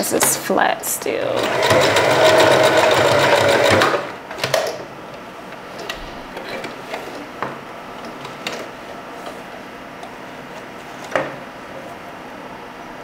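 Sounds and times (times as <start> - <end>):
sewing machine stopping: 1.4 - 4.2.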